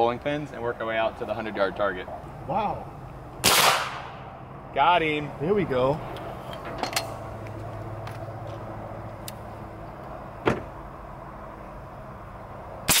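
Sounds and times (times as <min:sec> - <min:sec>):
suppressed rifle shot: 0:03.4 - 0:04.1.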